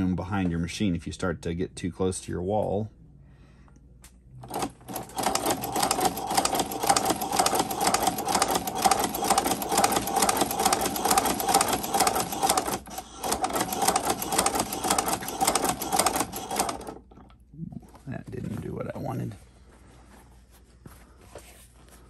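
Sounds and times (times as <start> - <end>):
sewing machine stitching leather: 4.4 - 17.3.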